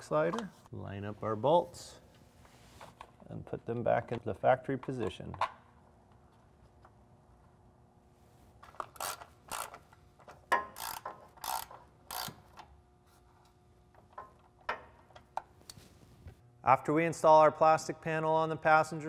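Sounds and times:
hand ratchet clicking: 8.7s - 12.7s.

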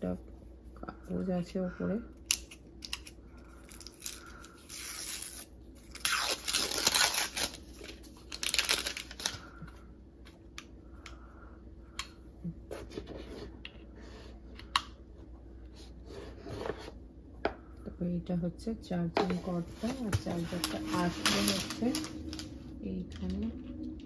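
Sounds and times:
paper tearing and rustling: 3.8s - 9.4s, 19.8s - 22.5s.

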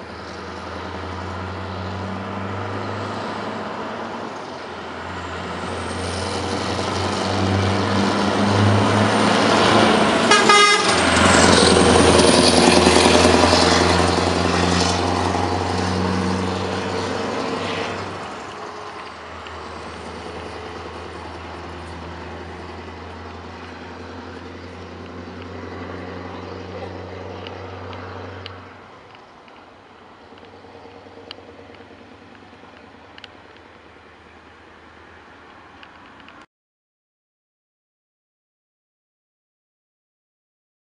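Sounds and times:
truck engine passing: 0.0s - 36.2s
truck horn toot: 10.2s - 11.4s.

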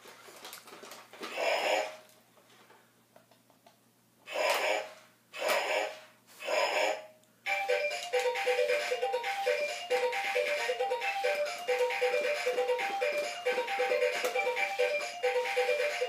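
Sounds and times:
beeping electronic tune: 7.5s - 16.0s.

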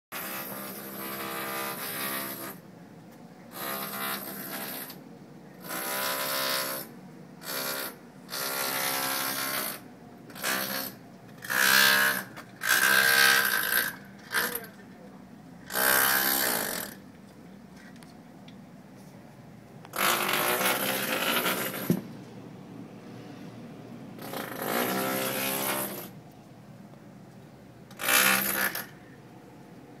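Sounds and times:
harsh mechanical buzzing: 5.6s - 14.8s, 15.6s - 17.0s, 19.8s - 22.1s, 24.2s - 26.2s, 27.9s - 29.1s.

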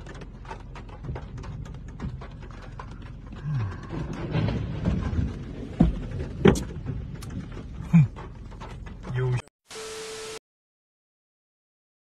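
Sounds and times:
wind and rain rumble: 0.0s - 9.3s
rain ticking on car: 0.0s - 9.4s.

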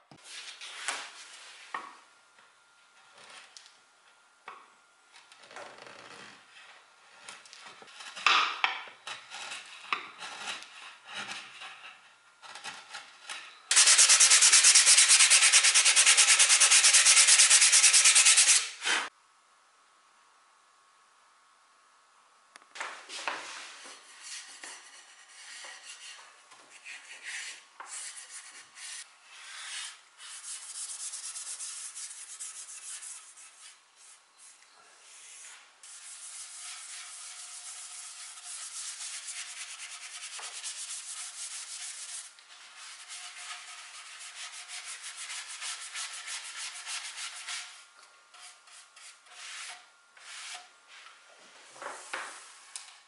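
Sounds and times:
brush strokes on wood: 48.4s - 51.2s.

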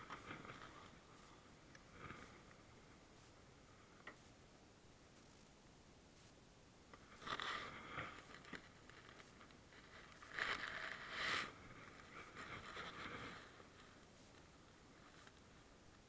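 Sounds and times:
jacket fabric rustling: 7.0s - 15.8s.

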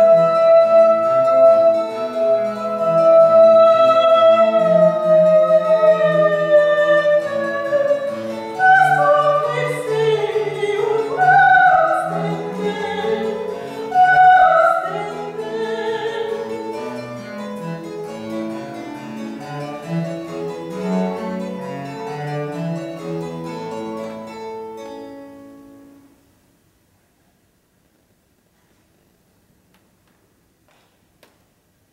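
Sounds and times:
soprano singing with vibrato: 0.0s - 16.8s
cello and harpsichord: 0.0s - 26.1s.

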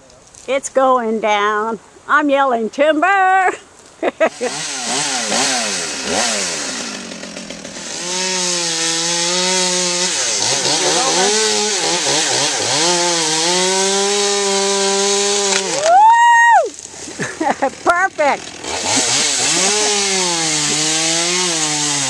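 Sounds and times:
chainsaw cutting wood: 4.3s - 16.0s, 16.7s - 22.0s.

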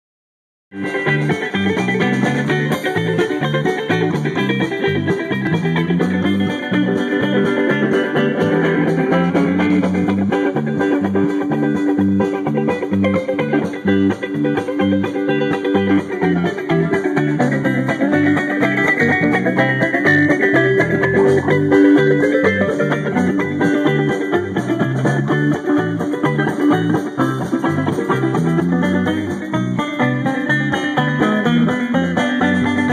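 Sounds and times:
drum kit: 0.7s - 32.9s
electric bass: 0.7s - 32.9s
plucked strings: 0.7s - 32.9s.

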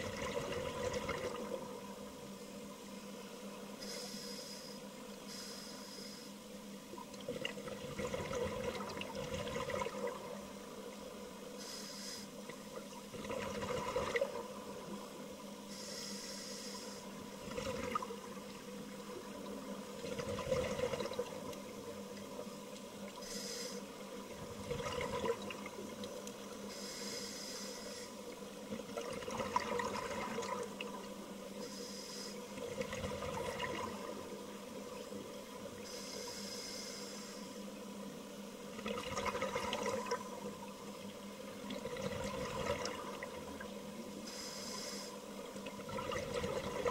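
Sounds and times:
exhaust bubbles gurgling: 0.0s - 1.9s, 7.1s - 10.4s, 13.1s - 14.8s, 17.4s - 18.6s, 19.2s - 21.7s, 24.3s - 26.1s, 28.7s - 31.0s, 32.6s - 34.4s, 38.7s - 40.6s, 41.5s - 43.7s, 45.6s - 46.9s
faint steady hum: 0.0s - 46.9s
regulator inhale hiss: 3.7s - 6.6s, 11.5s - 12.6s, 15.6s - 17.3s, 23.2s - 24.1s, 26.6s - 28.4s, 31.6s - 32.7s, 35.8s - 37.8s, 44.2s - 45.5s.

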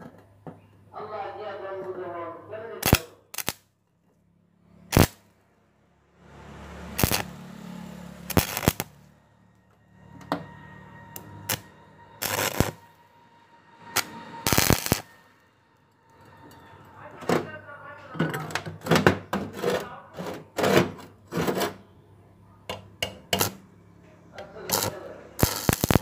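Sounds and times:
welding arc crackling: 2.8s - 3.6s, 4.9s - 5.2s, 7.0s - 9.1s, 11.2s - 12.9s, 14.0s - 15.2s, 23.3s - 23.6s, 24.7s - 26.0s
low hum: 4.2s - 18.0s.

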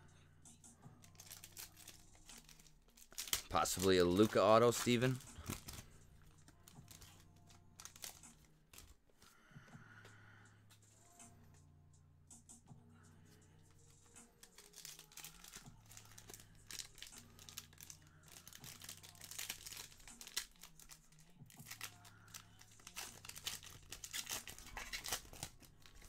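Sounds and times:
foil wrappers crinkling and tearing: 1.0s - 8.9s, 13.9s - 26.0s.

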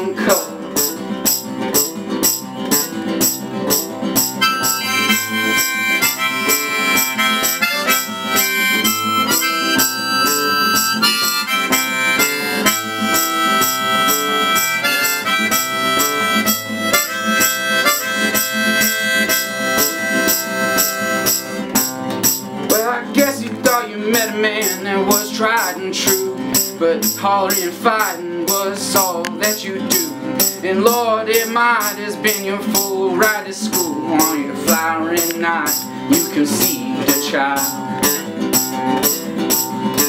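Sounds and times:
strummed acoustic guitar: 0.0s - 40.0s
harmonica playing held notes: 4.2s - 22.4s.

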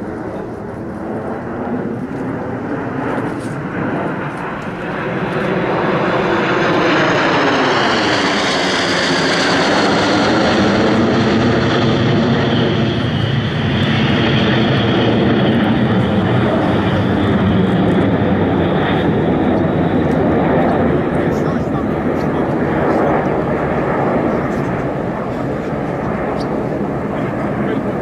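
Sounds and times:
jet engines roaring overhead: 0.0s - 28.0s.

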